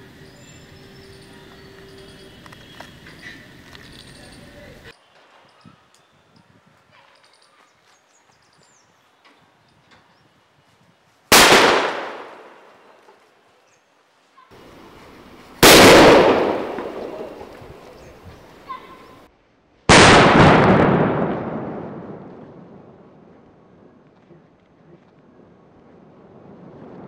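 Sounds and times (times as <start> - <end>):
firecracker bangs: 11.3 - 12.7, 15.6 - 18.0, 19.9 - 23.2.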